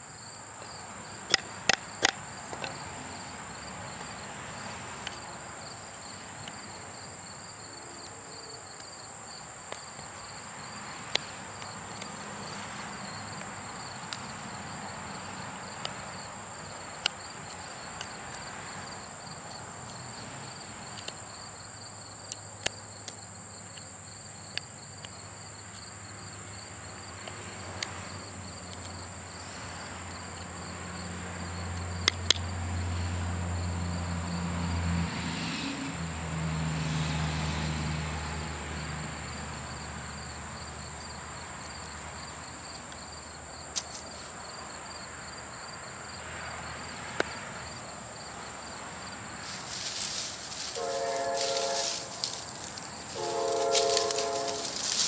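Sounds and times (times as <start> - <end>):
insects chirping: 0.0 - 55.0
knife carving wooden stick: 0.6 - 2.9, 8.0 - 14.4, 32.0 - 32.5
long horn blasts: 50.6 - 55.0.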